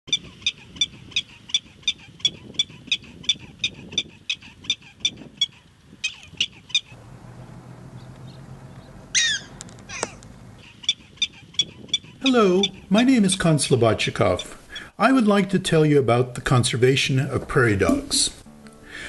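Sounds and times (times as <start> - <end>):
prairie dog alarm chirps: 0.1 - 7.0, 9.1 - 12.9.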